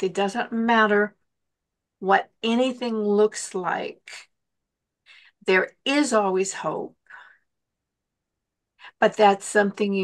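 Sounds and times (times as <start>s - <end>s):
woman breathing: 5.0s - 5.4s, 7.0s - 7.6s.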